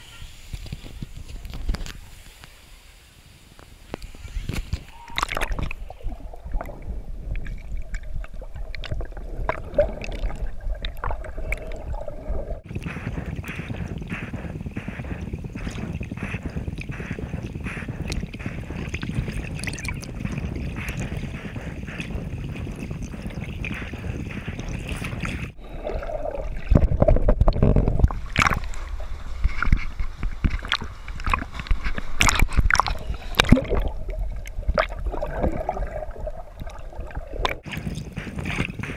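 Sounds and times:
muffled underwater churning: 0:04.8 - 0:38.9.

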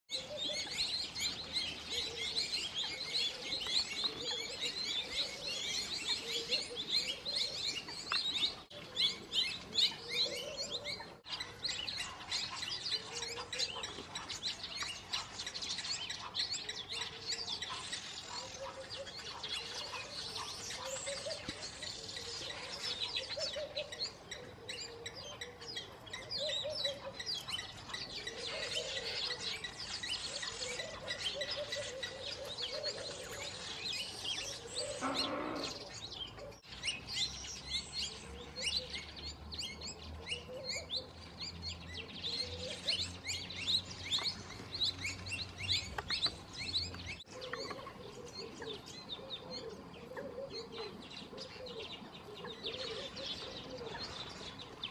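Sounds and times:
birds chirping and whistling: 0:00.1 - 0:54.9.

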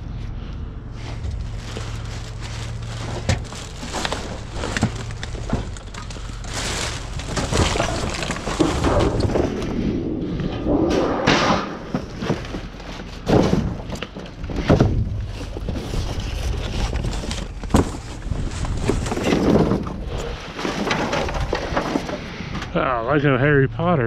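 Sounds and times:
cardboard rustling and crunching: 0:01.0 - 0:09.8, 0:11.8 - 0:22.2
thuds and knocks: 0:11.2 - 0:16.1.

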